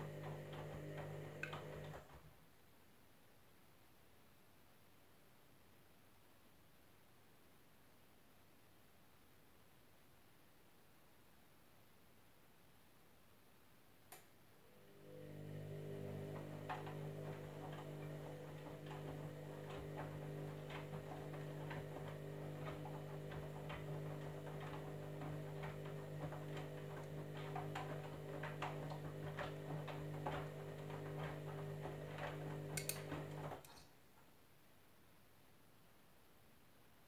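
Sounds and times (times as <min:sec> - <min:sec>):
washing machine motor hum: 0:00.0 - 0:02.2, 0:14.6 - 0:33.7.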